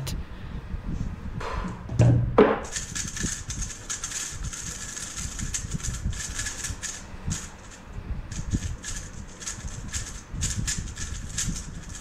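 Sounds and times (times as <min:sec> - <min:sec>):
speedcube clicking and clatter: 0:02.6 - 0:12.0.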